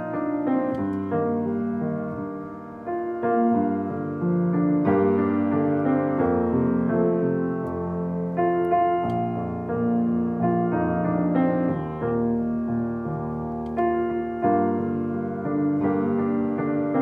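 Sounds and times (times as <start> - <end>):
slow keyboard music: 0.0 - 17.0.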